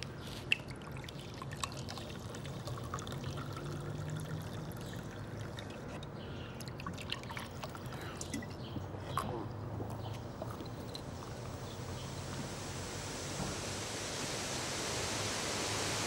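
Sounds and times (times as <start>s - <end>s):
soda pouring into glass: 0.0s - 8.4s.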